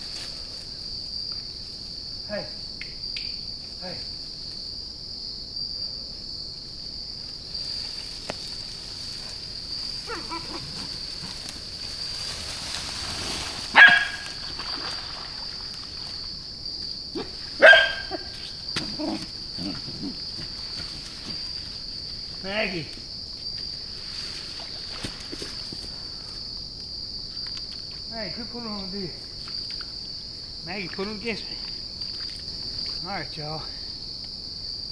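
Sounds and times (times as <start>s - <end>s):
high-pitched insect chorus: 0.0s - 34.9s
dog barking: 10.1s - 10.7s, 13.7s - 14.4s, 17.2s - 18.4s.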